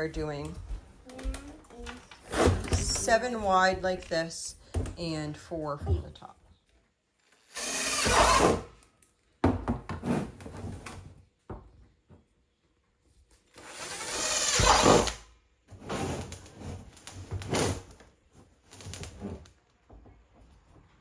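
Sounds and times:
cordless drill boring plastic: 7.3 - 8.7, 13.5 - 15.2.

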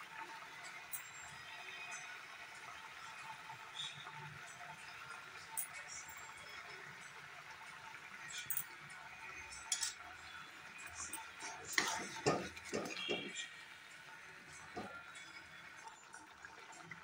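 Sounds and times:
chutney simmering: 6.5 - 17.0
metal spatula scraping steel pan: 11.4 - 13.4.

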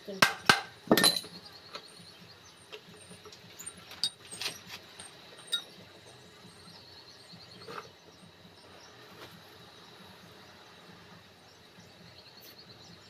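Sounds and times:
low steady background hum: 0.0 - 13.0
metal tools clicking and knocking: 0.2 - 1.8, 2.7 - 5.8.

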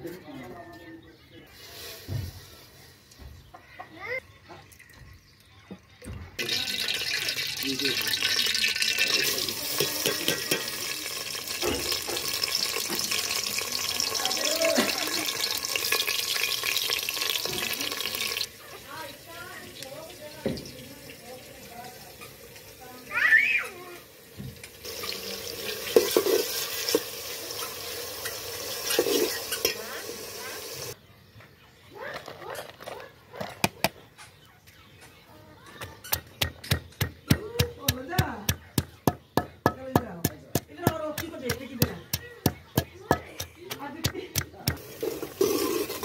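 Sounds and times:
onions sizzling in oil: 6.4 - 31.0, 44.7 - 46.0
onion pieces knocking into pot: 9.7 - 12.9.

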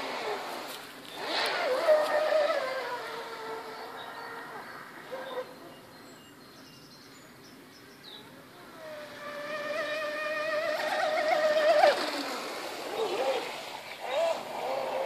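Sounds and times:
rc boat electric motor whine: 0.0 - 5.3, 8.5 - 15.0.

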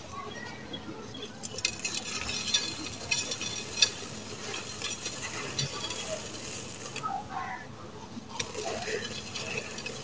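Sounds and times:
grains pattering into clay pot: 1.0 - 7.1, 8.2 - 10.0.

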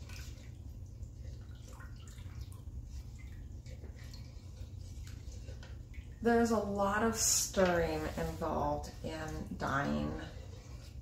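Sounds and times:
light splashes and ticks: 0.0 - 6.8
low steady hum: 0.0 - 11.0
water swishing in a pot: 0.0 - 11.0.

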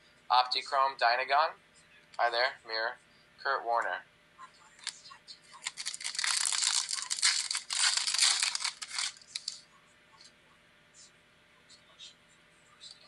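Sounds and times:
plastic wrapper crinkling: 4.8 - 9.6.

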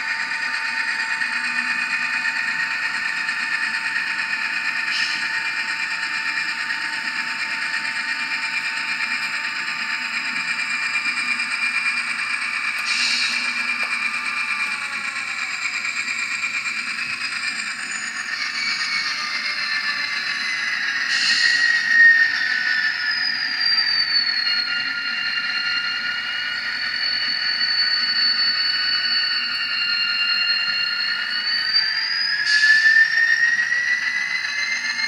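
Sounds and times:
blower whine from small speaker: 0.0 - 35.0.

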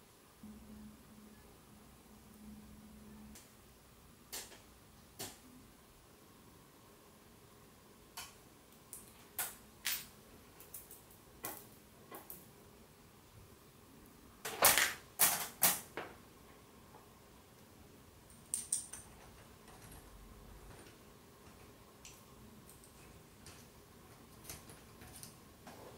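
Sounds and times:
small metal parts clinking: 18.3 - 20.0.

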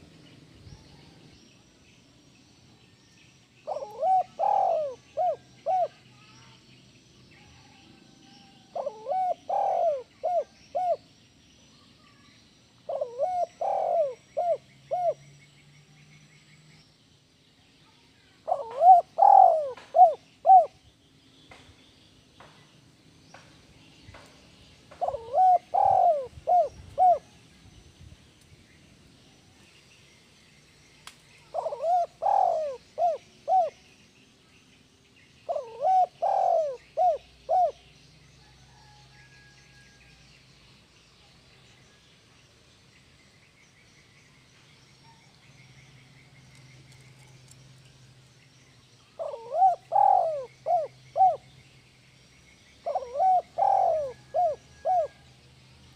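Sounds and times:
faint bird twittering: 0.0 - 55.9
dove cooing: 3.6 - 6.0, 8.2 - 11.0, 12.9 - 15.2, 18.4 - 20.8, 24.9 - 27.4, 31.5 - 33.8, 35.5 - 37.9, 49.2 - 51.4, 52.8 - 55.2.

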